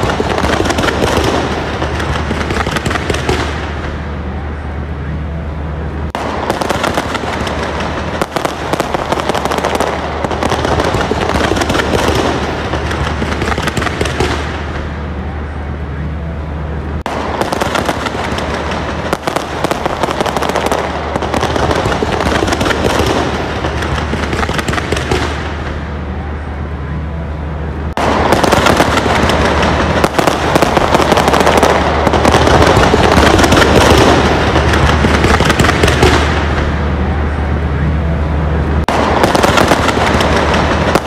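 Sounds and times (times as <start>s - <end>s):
fireworks bangs and crackling: 0.0s - 4.7s, 5.9s - 15.8s, 16.8s - 26.6s, 27.9s - 41.0s.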